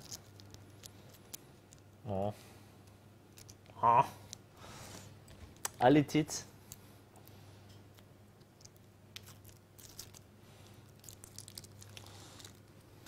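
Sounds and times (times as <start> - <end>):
foil wrapper crinkling: 0.0 - 1.8, 8.6 - 12.7
low steady hum: 0.0 - 13.0.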